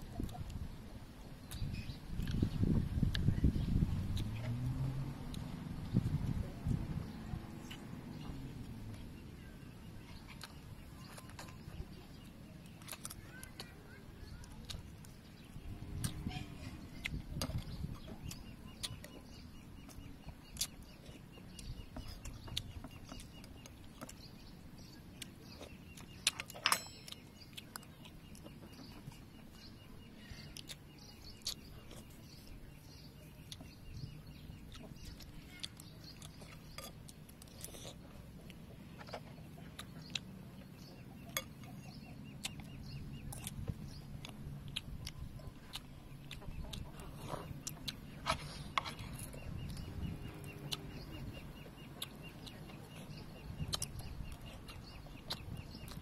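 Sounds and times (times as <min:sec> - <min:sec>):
faint bird chirping: 0:00.0 - 0:56.0
soft chewing: 0:00.0 - 0:56.0
spoons clinking on ceramic bowl: 0:26.6 - 0:27.2.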